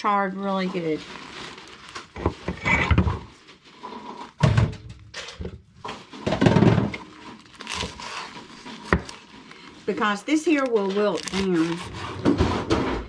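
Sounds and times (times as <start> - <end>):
leaves rustling: 0.4 - 2.2, 7.2 - 9.8, 10.5 - 12.1.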